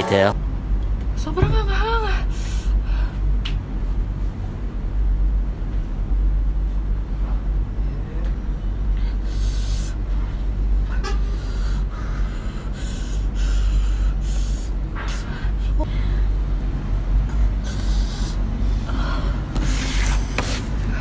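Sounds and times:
steady low rumble: 0:00.0 - 0:21.0
sharp hissing breaths: 0:11.2 - 0:15.6, 0:17.6 - 0:20.2.

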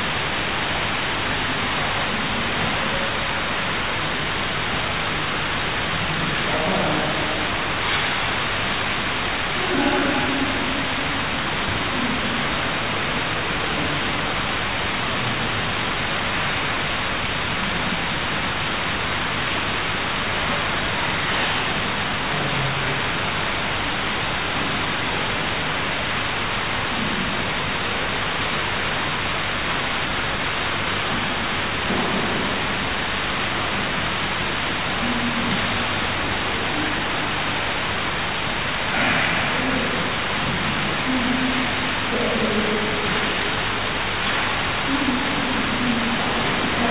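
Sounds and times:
recording hiss: 0:00.0 - 0:46.9
faint murmurs: 0:38.7 - 0:43.6.

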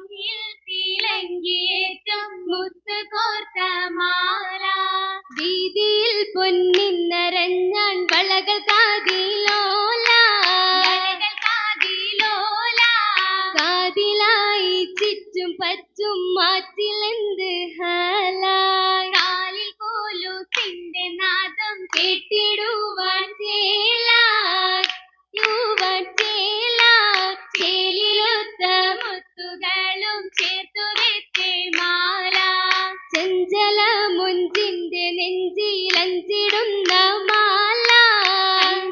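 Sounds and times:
girls singing in unison: 0:00.0 - 0:38.9
hand claps: 0:01.0 - 0:01.2, 0:05.3 - 0:05.7, 0:06.7 - 0:07.0, 0:08.0 - 0:14.1, 0:14.9 - 0:15.2, 0:19.1 - 0:19.4, 0:20.2 - 0:20.8, 0:21.8 - 0:23.2, 0:24.0 - 0:29.3, 0:30.0 - 0:34.8, 0:35.8 - 0:38.9.

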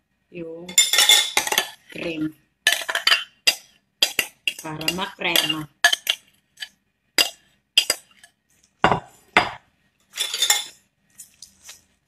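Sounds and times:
spoon stirring thick salad: 0:00.7 - 0:09.4, 0:10.0 - 0:12.0
spoons knocking against bowl: 0:02.7 - 0:06.2, 0:07.2 - 0:09.6.

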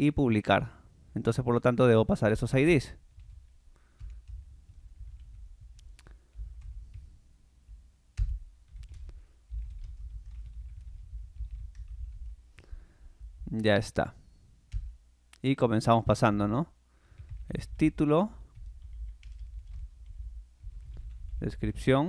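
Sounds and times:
keyboard typing: 0:03.1 - 0:12.4, 0:14.7 - 0:15.0, 0:17.1 - 0:21.6.

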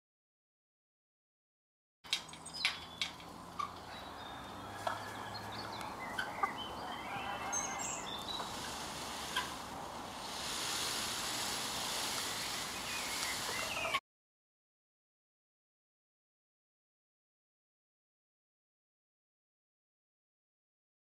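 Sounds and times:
small birds chirping: 0:02.1 - 0:14.0
steady outdoor hiss: 0:02.1 - 0:14.0
faint fowl calls: 0:03.5 - 0:14.0.

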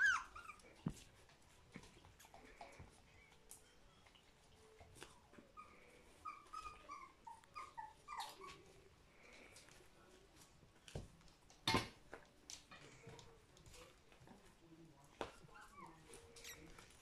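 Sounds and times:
puppies whining: 0:00.0 - 0:09.6.

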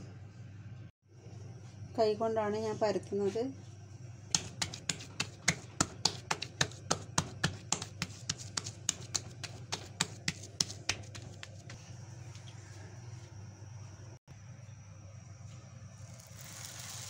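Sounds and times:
hands patting dough on stone: 0:04.3 - 0:12.4.

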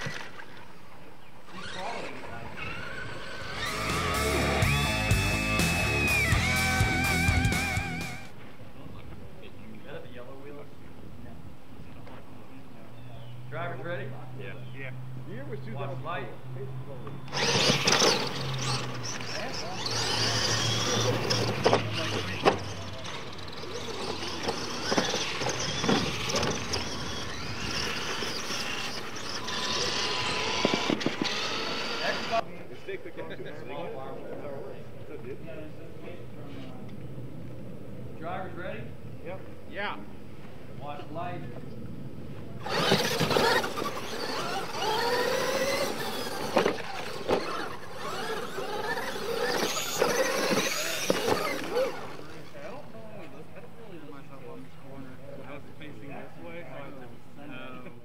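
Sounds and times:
toy truck motors whining: 0:00.0 - 0:08.4, 0:16.8 - 0:32.4, 0:42.5 - 0:54.2.

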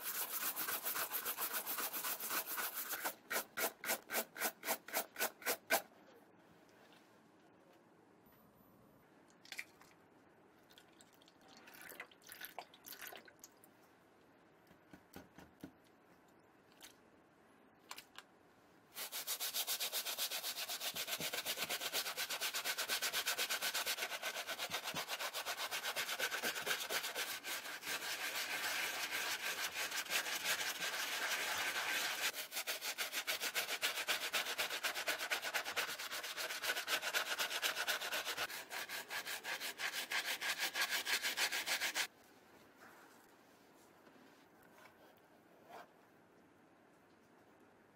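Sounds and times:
brush scrubbing a sneaker: 0:00.0 - 0:05.8, 0:19.0 - 0:42.1.

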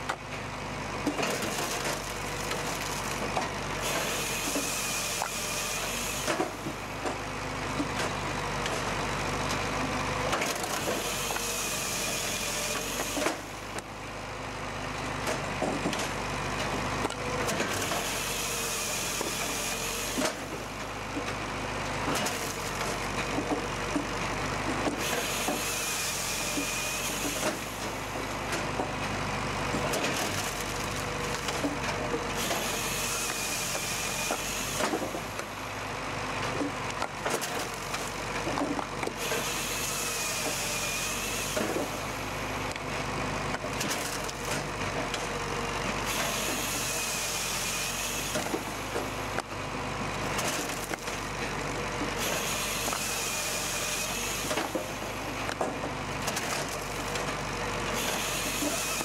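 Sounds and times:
firewood processor running: 0:00.0 - 0:59.0
high-pitched saw cutting log: 0:01.2 - 0:07.0, 0:10.4 - 0:13.8, 0:17.0 - 0:20.8, 0:24.8 - 0:28.8, 0:29.8 - 0:35.7, 0:36.6 - 0:42.8, 0:46.0 - 0:49.4, 0:52.0 - 0:59.0.

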